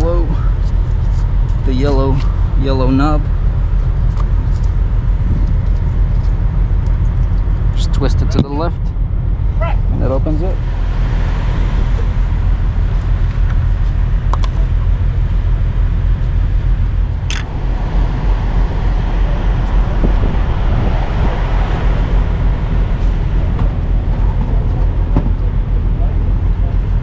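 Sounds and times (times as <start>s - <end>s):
engine idling: 0.0s - 27.0s.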